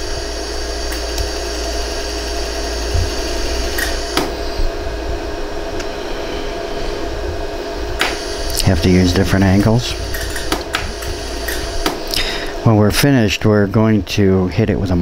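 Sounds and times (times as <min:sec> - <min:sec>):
laser welder hum: 0:00.0 - 0:15.0
sharp laser pulse clicks: 0:03.7 - 0:04.4.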